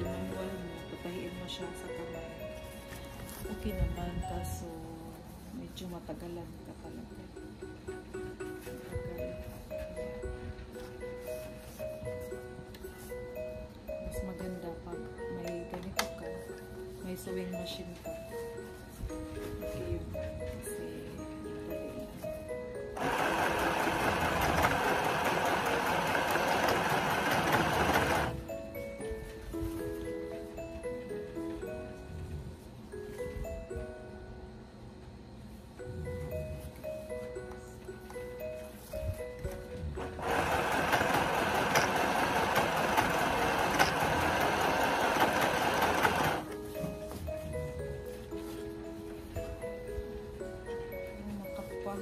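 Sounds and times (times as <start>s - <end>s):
faint background music: 0.0s - 52.0s
sewing machine stitching: 23.0s - 28.4s, 40.1s - 46.4s.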